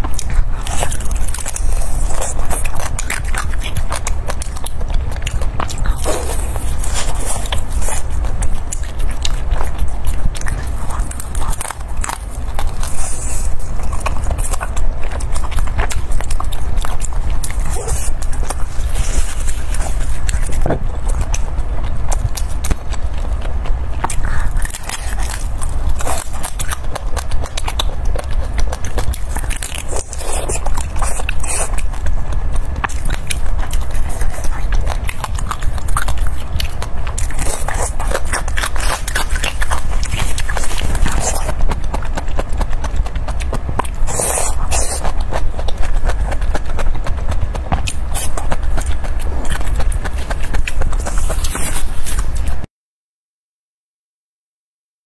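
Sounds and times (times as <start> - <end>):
biting into meat: 0.0 - 52.7
person chewing: 0.0 - 52.7
steady low hum: 0.0 - 52.7.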